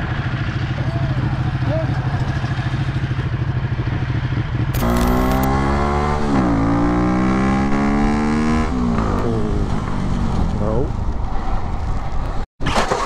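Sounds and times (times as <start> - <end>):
motorcycle engine idling: 0.0 - 5.5
motorcycle engine accelerating: 0.0 - 12.0.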